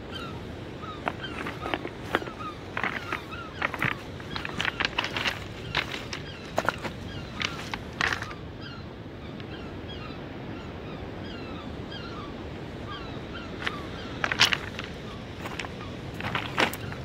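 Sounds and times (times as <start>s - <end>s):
small birds chirping: 0.0s - 10.2s, 12.9s - 17.0s
footsteps crunching on pebbles: 1.0s - 8.4s, 13.6s - 17.0s.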